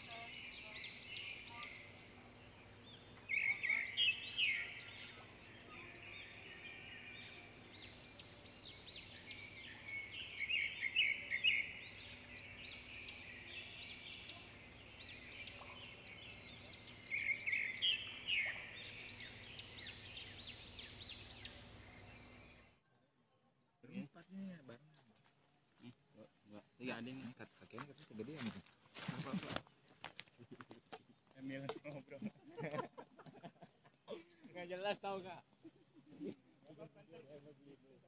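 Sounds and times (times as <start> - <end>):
birds chirping: 0.0 - 22.8.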